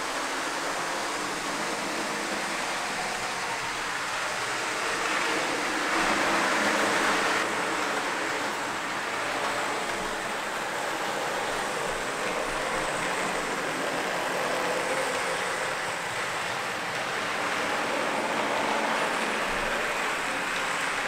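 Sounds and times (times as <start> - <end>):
model train wheels clicking on rails: 0.0 - 21.0.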